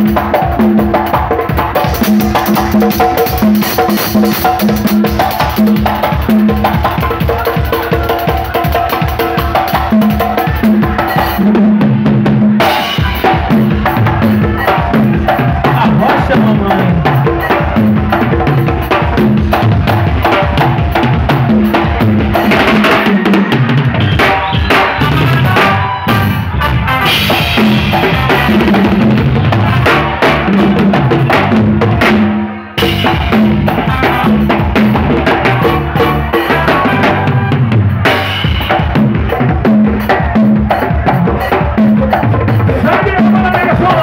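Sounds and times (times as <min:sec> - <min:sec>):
drum kit with rimshots: 0:00.0 - 0:44.0
live band playing: 0:00.0 - 0:44.0.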